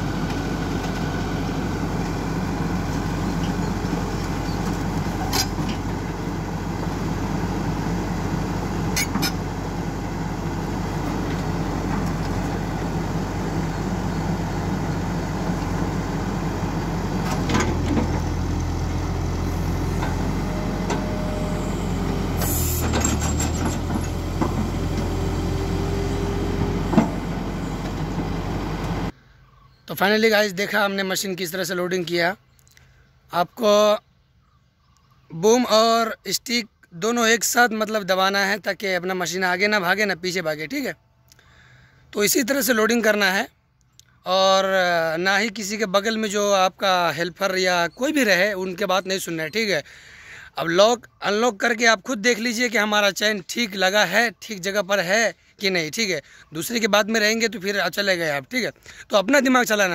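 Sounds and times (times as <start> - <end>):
excavator diesel engine running: 0.0 - 29.2.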